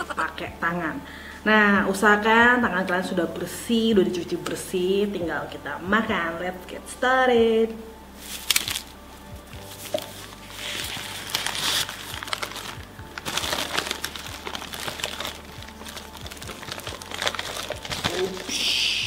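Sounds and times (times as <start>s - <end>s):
paper wrapping crinkling: 8.2s - 18.8s.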